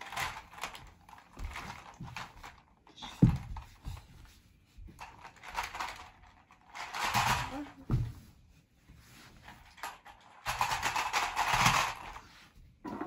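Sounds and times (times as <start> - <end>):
plastic toy knocks and rustles: 0.0 - 4.2, 4.8 - 8.2, 9.7 - 12.2.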